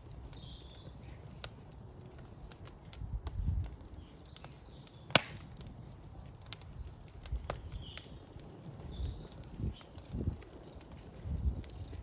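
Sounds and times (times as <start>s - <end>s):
wood fire crackling: 0.0s - 12.0s
loud sharp pop from fire: 4.4s - 5.5s.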